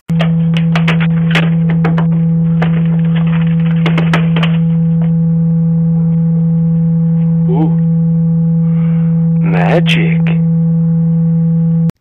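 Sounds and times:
low electronic tone: 0:00.1 - 0:12.0
wavering voice-like sound: 0:07.4 - 0:08.0.

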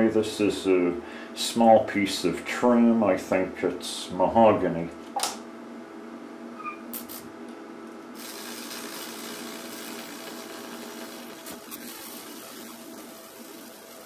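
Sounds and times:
electrical hum: 0:00.0 - 0:14.0
electric arc sizzling: 0:06.9 - 0:07.3, 0:08.1 - 0:14.0.

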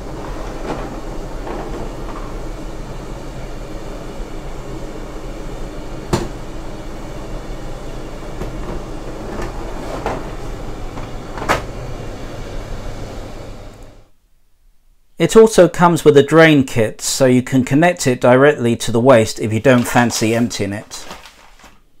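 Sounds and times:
plastic drawer knocks and clicks: 0:06.1 - 0:06.4.

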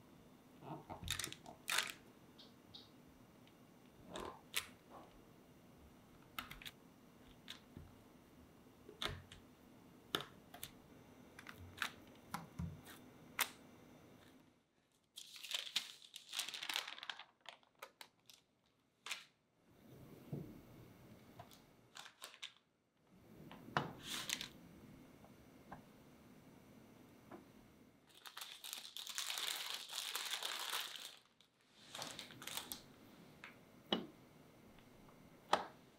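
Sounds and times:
parchment paper crinkling: 0:14.2 - 0:19.3, 0:21.5 - 0:22.6, 0:24.0 - 0:24.6, 0:28.1 - 0:32.9.

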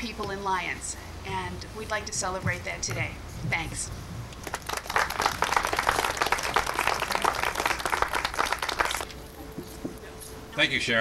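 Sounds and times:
audience applauding: 0:04.4 - 0:09.2.

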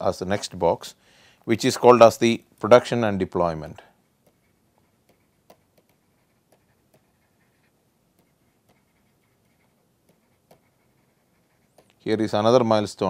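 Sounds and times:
stylus tapping on tablet: 0:04.2 - 0:12.0.

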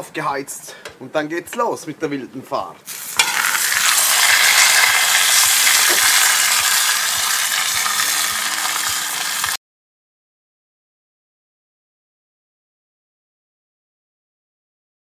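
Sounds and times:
steak sizzling on griddle: 0:02.9 - 0:09.6.

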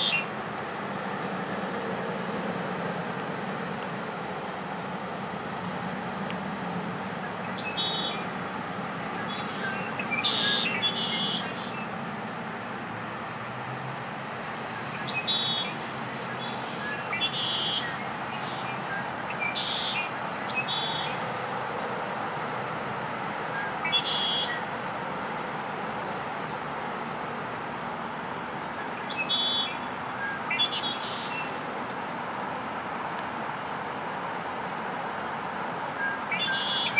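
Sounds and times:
blackbird singing: 0:00.0 - 0:00.3, 0:07.4 - 0:08.2, 0:09.2 - 0:11.9, 0:14.8 - 0:15.8, 0:16.4 - 0:21.2, 0:23.6 - 0:24.7, 0:28.9 - 0:31.6, 0:36.0 - 0:36.9.

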